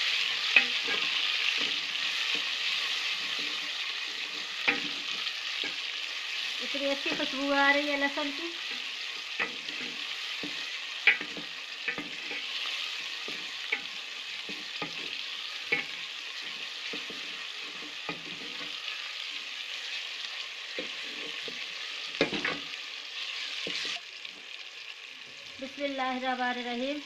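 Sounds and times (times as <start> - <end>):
wooden spoon scraping a pot: 0.0 - 5.8, 8.6 - 18.8, 20.7 - 21.9
vegetables sizzling in oil: 0.0 - 27.0.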